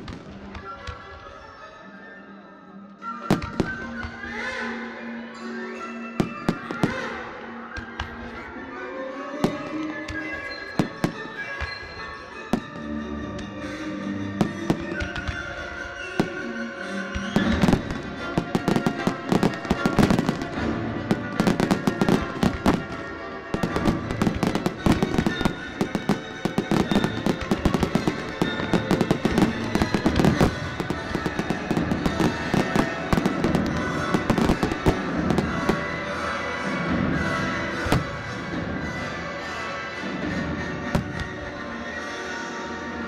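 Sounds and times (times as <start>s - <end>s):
firework bangs and crackles: 0.0s - 0.7s, 3.3s - 3.8s, 14.4s - 16.4s, 17.1s - 36.1s, 36.8s - 38.9s, 40.4s - 41.6s.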